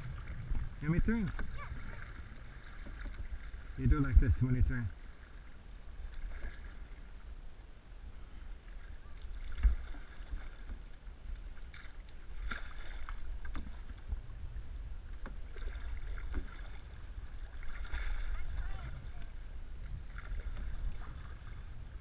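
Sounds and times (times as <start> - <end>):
paddles splashing in water: 0.0 - 7.3, 8.1 - 22.0
wind rumble on microphone: 0.0 - 22.0
paddle knocking on metal canoe: 2.7 - 3.4.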